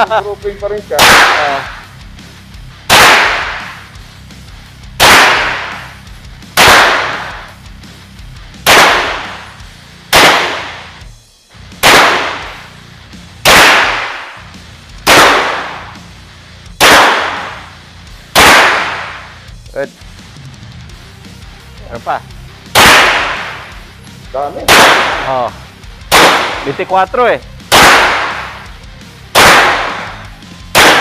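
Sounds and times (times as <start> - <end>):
suppressed pistol shots: 1.0 - 1.8, 2.9 - 3.8, 5.0 - 6.0, 6.6 - 7.6, 8.6 - 11.0, 11.8 - 12.7, 13.4 - 14.4, 15.0 - 16.0, 16.8 - 19.4, 22.7 - 23.8, 24.6 - 25.4, 26.1 - 26.8, 27.7 - 28.7, 29.3 - 31.0.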